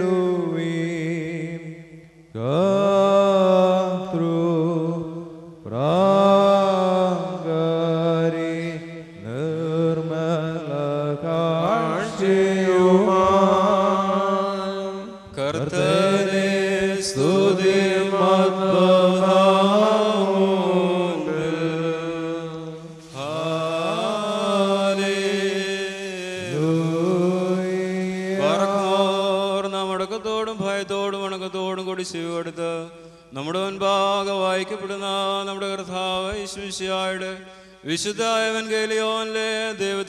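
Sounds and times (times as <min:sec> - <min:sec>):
voices chanting: 0:15.5 - 0:22.4, 0:23.1 - 0:25.7
singers breathing: 0:32.9 - 0:33.4, 0:37.4 - 0:37.9.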